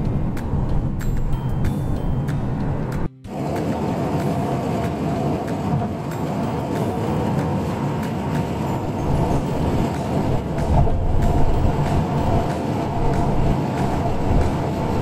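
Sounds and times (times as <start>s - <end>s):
road noise inside car: 0.0s - 15.0s
car engine: 7.2s - 15.0s.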